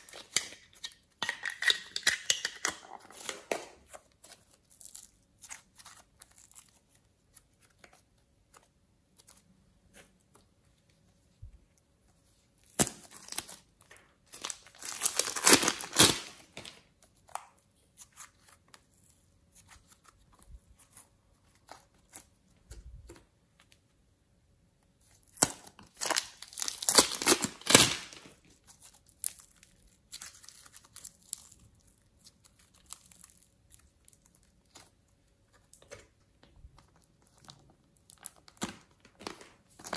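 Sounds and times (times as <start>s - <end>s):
slime crackling and tearing: 3.0s - 7.5s, 14.3s - 17.4s, 25.0s - 34.9s, 36.8s - 39.9s.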